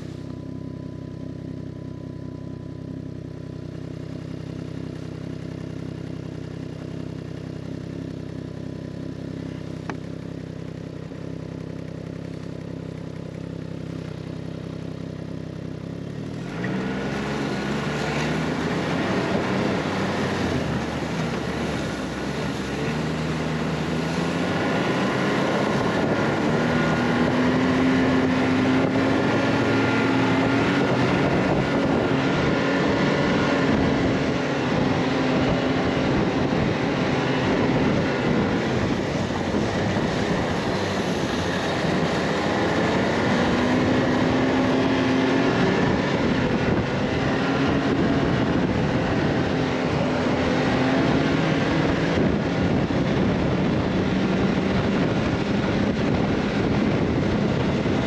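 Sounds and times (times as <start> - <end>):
vehicle engine running: 0.0 - 58.0
wind noise on microphone: 18.4 - 58.0.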